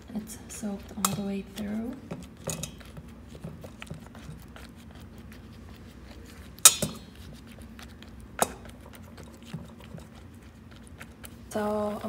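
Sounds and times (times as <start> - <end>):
metal spoon clinking on steel pot: 2.4 - 2.8, 6.6 - 7.0.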